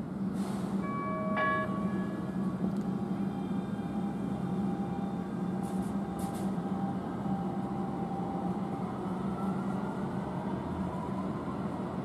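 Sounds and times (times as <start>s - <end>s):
rising train whine: 0.0s - 12.0s
train running gear hum: 0.0s - 12.0s
faint brief hisses: 0.4s - 0.8s.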